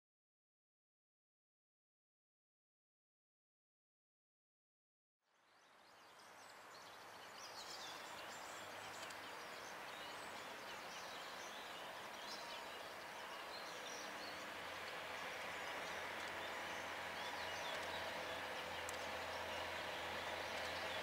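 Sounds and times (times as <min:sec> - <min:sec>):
birds chirping: 0:05.9 - 0:21.0
distant train hum: 0:06.5 - 0:21.0.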